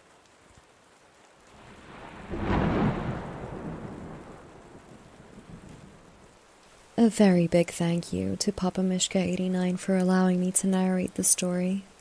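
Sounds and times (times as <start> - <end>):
steady rain: 0.0 - 12.0
thunder rumble and crack: 1.5 - 6.4.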